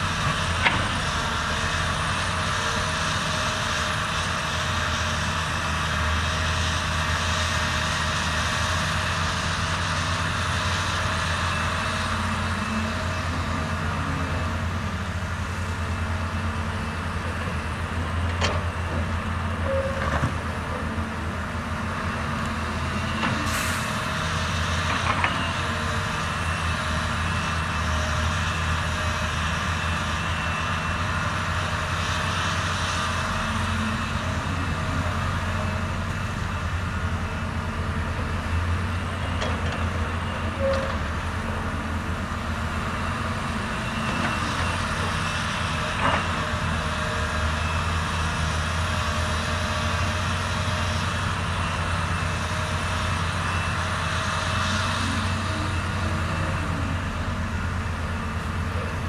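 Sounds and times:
excavator diesel engine drone: 0:00.0 - 0:59.0.

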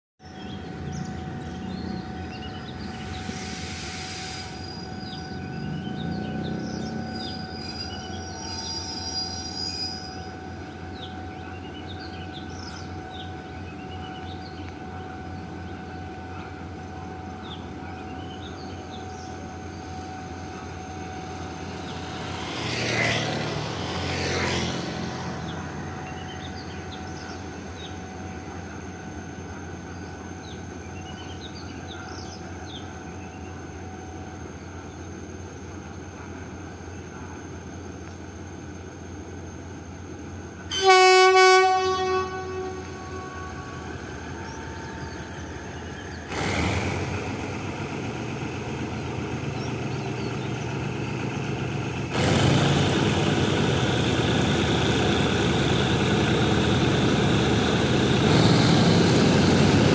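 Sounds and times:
locomotive engine droning: 0:00.2 - 0:59.9
brief hiss: 0:03.2 - 0:04.8
birds chirping: 0:04.6 - 0:33.8, 0:42.6 - 0:46.4, 0:48.3 - 0:52.0.

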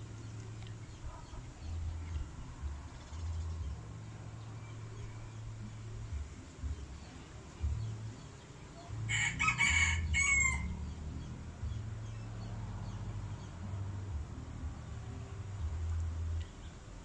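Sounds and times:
rooster crowing: 0:09.1 - 0:10.8.

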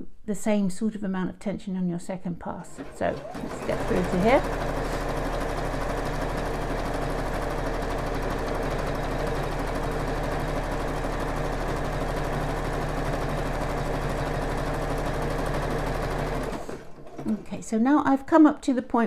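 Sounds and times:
sewing machine running: 0:02.6 - 0:17.7.

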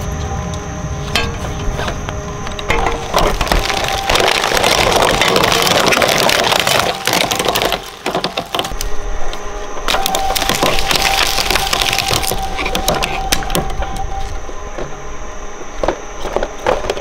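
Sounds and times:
steady whine: 0:00.0 - 0:17.0
shredder crunching plastic toy: 0:02.7 - 0:08.8, 0:09.9 - 0:13.5.

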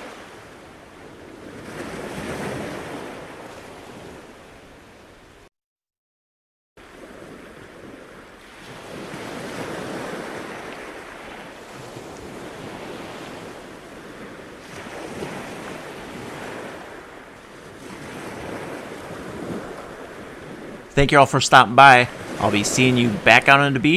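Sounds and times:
surf breaking on beach: 0:00.0 - 0:05.5, 0:06.8 - 0:23.9
wind on microphone: 0:06.8 - 0:21.0.

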